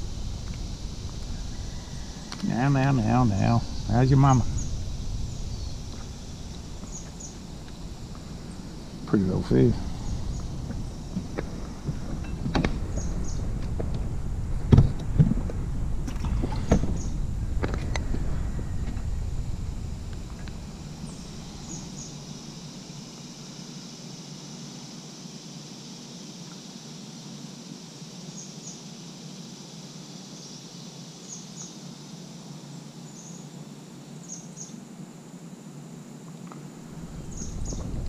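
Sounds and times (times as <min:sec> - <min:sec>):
bird chirping: 0:00.0 - 0:14.1, 0:16.1 - 0:23.0, 0:36.9 - 0:38.0
wind rumble on microphone: 0:00.0 - 0:23.4, 0:36.8 - 0:38.0
high insect buzz: 0:00.0 - 0:38.0.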